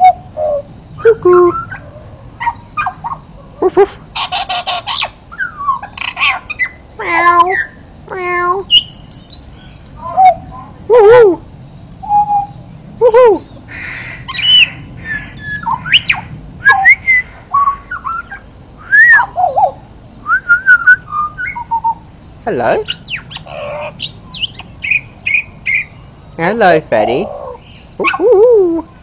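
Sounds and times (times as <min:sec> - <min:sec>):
bird singing fluting whistles: 0:12.0 - 0:12.6, 0:14.3 - 0:22.0.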